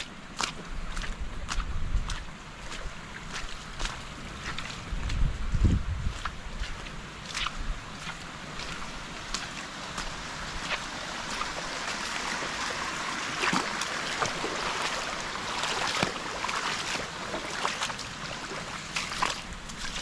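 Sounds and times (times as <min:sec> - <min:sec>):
running water rushing: 0:06.1 - 0:20.0.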